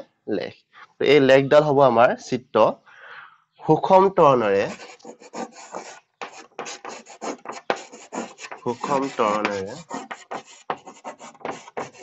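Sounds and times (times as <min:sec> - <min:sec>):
chalk scraping on blackboard: 0:04.6 - 0:12.0
man's voice: 0:08.7 - 0:09.8.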